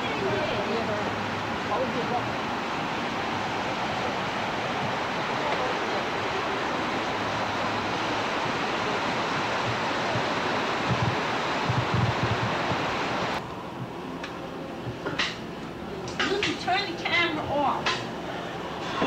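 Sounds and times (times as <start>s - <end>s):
fast river rushing: 0.0s - 13.4s
low thumps: 9.6s - 13.0s.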